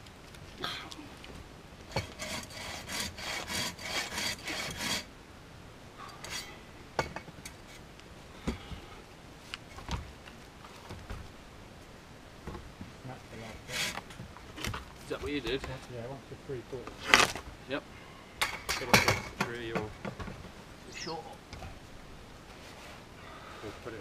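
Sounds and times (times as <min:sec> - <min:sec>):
bow saw rasping through log: 0:01.9 - 0:05.1, 0:13.6 - 0:14.0
short scrapes and knocks: 0:01.9 - 0:05.1, 0:13.4 - 0:15.9.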